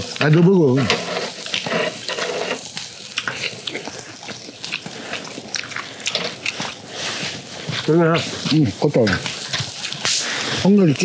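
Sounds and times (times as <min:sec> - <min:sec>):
crackles and pops from coals: 0:00.0 - 0:11.0
meat sizzling on charcoal grill: 0:00.0 - 0:11.0.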